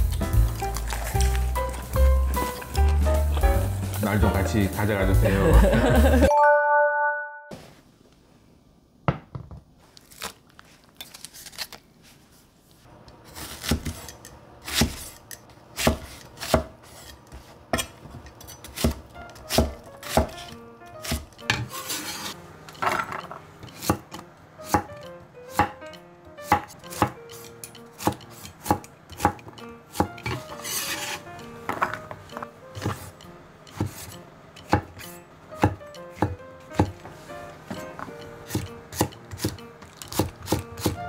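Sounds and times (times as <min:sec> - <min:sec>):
knife chopping on wooden board: 0:13.4 - 0:14.1, 0:15.8 - 0:23.0, 0:23.7 - 0:25.8, 0:26.4 - 0:27.4, 0:28.0 - 0:33.1, 0:33.7 - 0:37.0, 0:37.7 - 0:41.0.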